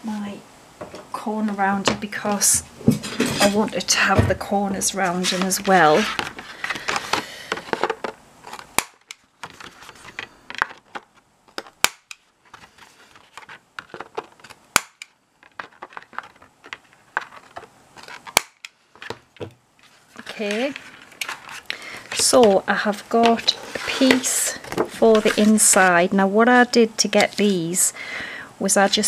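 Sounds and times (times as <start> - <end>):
paper handling: 4.8 - 8.7, 9.4 - 11.7, 12.4 - 14.6, 15.4 - 26.0.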